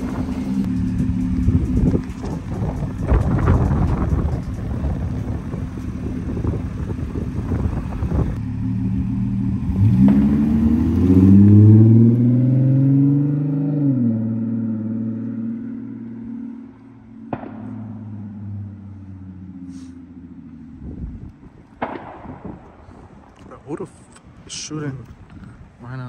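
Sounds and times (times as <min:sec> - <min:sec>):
car accelerating: 0:00.0 - 0:21.5
sharp bang: 0:17.2 - 0:18.8, 0:21.8 - 0:22.8.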